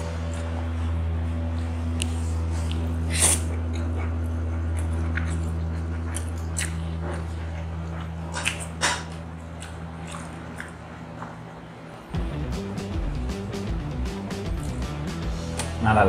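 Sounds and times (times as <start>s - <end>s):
low steady hum: 0.0s - 16.0s
mouth smacks: 1.9s - 11.6s
person slurping noodles: 3.0s - 3.6s.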